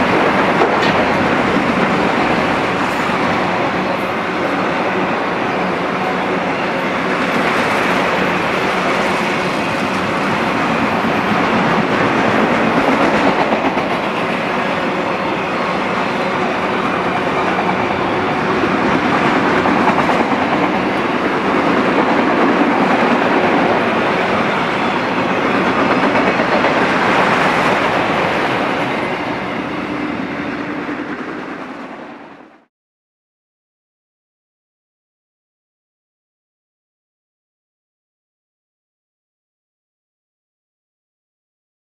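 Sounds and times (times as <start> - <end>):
freight train wheels on rails: 0.0 - 32.7.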